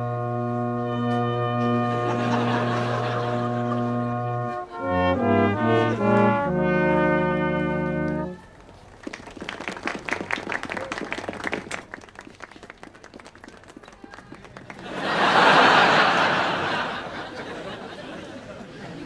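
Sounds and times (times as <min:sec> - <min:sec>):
studio audience laughing: 0:01.9 - 0:04.1, 0:14.8 - 0:19.0
audience applause: 0:08.9 - 0:18.1.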